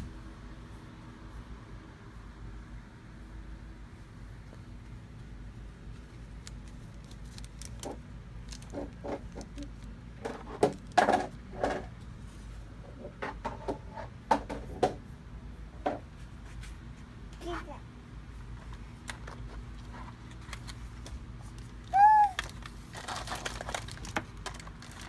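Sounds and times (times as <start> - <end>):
plastic packaging crinkling: 6.3 - 10.0, 19.7 - 25.0.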